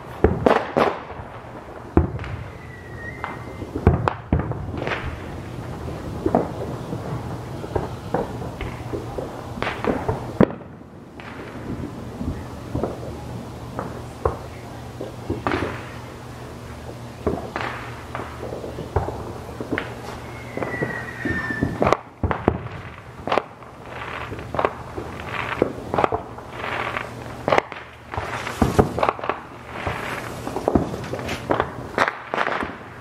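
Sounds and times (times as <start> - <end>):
fireworks booms and crackling: 0.0 - 33.0
firework whistle: 1.9 - 10.6, 16.7 - 32.8.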